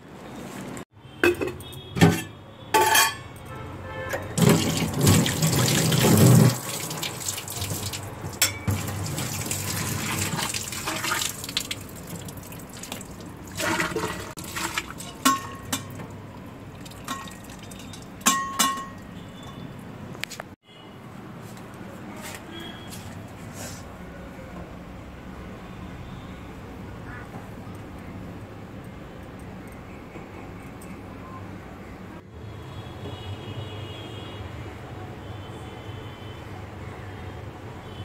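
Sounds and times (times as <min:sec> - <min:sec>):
steel utensils clinking: 0:01.3 - 0:03.5, 0:08.4 - 0:09.0, 0:13.6 - 0:16.2, 0:16.8 - 0:19.2
tap water splashing into sink: 0:04.4 - 0:16.1.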